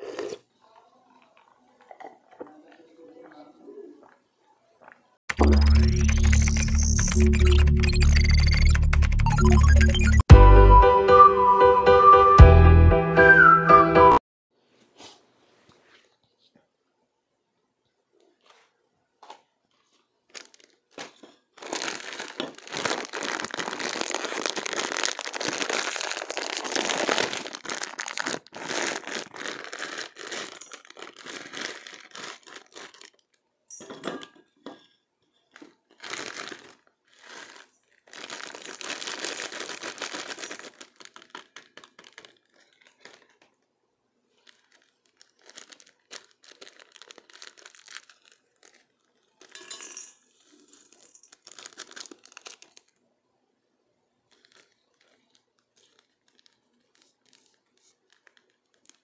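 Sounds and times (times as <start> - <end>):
plastic packaging crinkling: 18.4 - 33.4, 34.7 - 43.7, 44.3 - 49.7, 50.3 - 53.0, 54.3 - 59.0.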